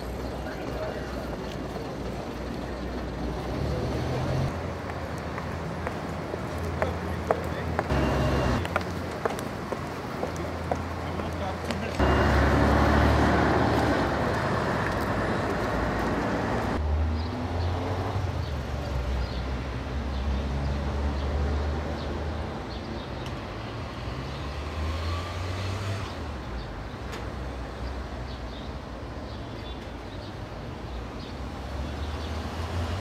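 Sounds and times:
low traffic rumble: 0.0 - 33.0
street traffic engines passing: 0.0 - 33.0.

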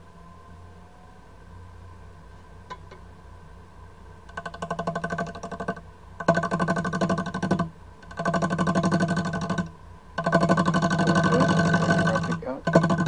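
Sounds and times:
fast even ticking: 4.3 - 13.0
lathe humming: 6.2 - 13.0.

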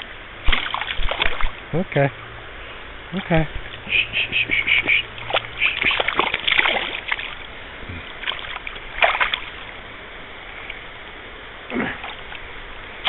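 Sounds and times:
river current: 0.0 - 13.0
fish splashing at surface: 0.4 - 1.6, 4.8 - 7.4, 8.2 - 9.6.

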